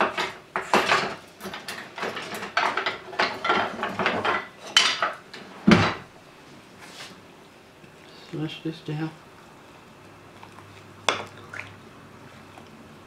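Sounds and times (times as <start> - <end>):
cookware and utensils clattering: 0.0 - 6.1.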